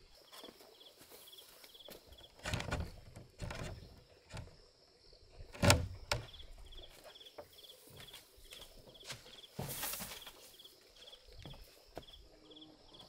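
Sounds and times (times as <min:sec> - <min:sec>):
insect chirping in trills: 0:00.1 - 0:13.0
straw rustling: 0:01.9 - 0:04.6
wooden door being pulled open: 0:02.2 - 0:04.6, 0:05.5 - 0:06.6.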